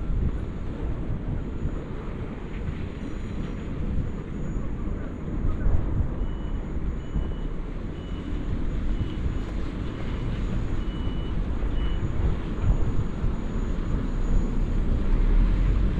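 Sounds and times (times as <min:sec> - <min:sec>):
low uneven rumble: 0:00.0 - 0:15.9
faint short beeps: 0:03.9 - 0:15.9.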